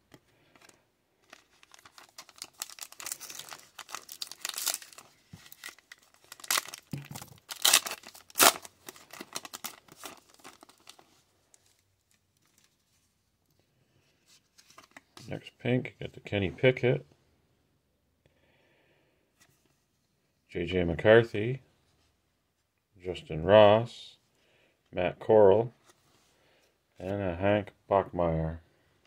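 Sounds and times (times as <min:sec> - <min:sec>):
foil wrapper tearing and crinkling: 0:01.2 - 0:11.0.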